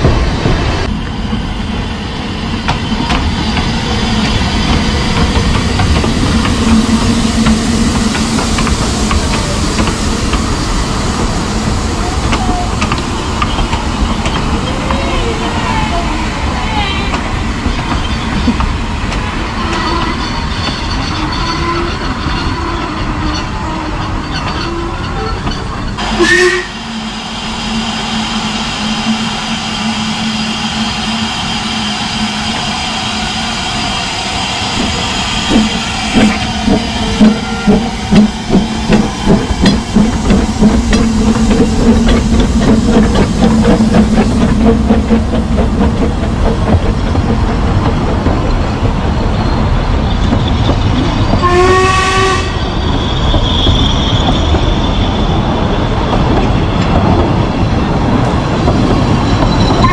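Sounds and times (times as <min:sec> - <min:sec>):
steam locomotive exhaust beats: 0:00.0 - 0:15.1, 0:17.1 - 0:59.9
train coaches rolling by: 0:00.0 - 0:59.9
steam hissing: 0:01.7 - 0:15.6, 0:26.0 - 0:47.4.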